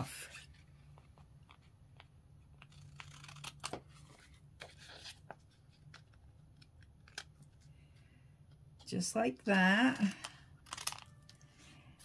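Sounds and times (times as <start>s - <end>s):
scissors snipping paper: 2.6s - 4.2s, 10.0s - 11.3s.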